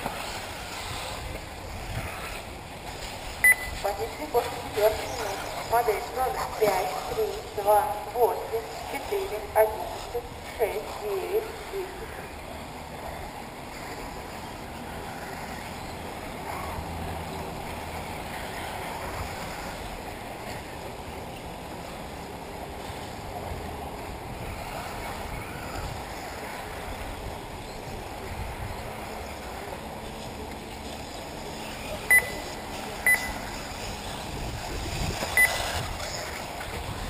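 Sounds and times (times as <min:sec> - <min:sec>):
wind noise on microphone: 0:00.0 - 0:08.4, 0:22.3 - 0:30.5, 0:33.0 - 0:37.0
electric rc buggies running: 0:00.0 - 0:37.0.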